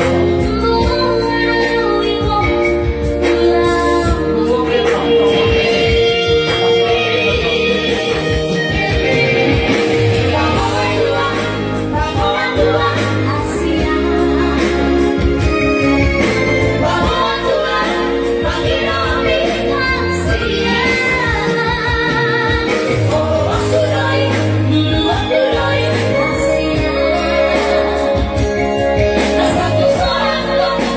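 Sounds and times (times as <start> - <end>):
bass line: 0.0 - 30.9
electronic keyboard: 0.0 - 30.9.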